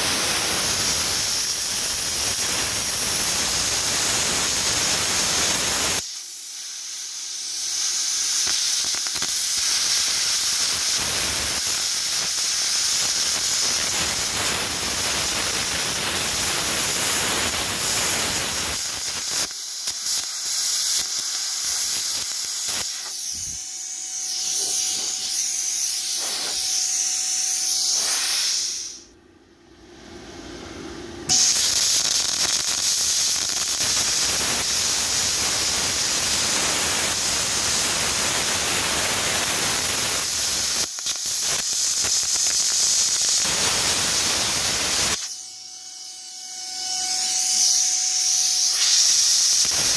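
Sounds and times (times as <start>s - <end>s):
plasma cutter hissing: 0.0s - 29.1s, 31.3s - 45.4s, 47.0s - 49.9s.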